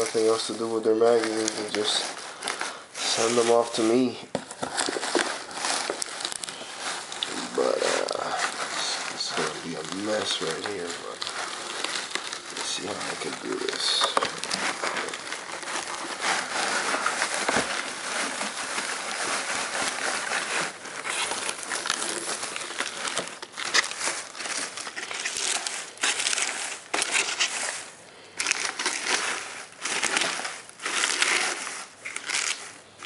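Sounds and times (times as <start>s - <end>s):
bubble wrap package handled: 0.0s - 33.0s
paper packing rustling: 0.0s - 33.0s.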